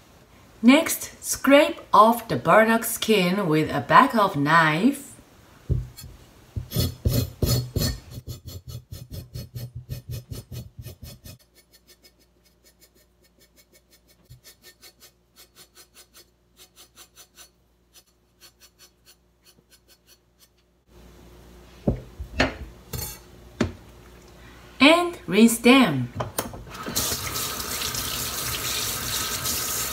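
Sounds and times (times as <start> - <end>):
knife scraping root skin: 6.7 - 20.6.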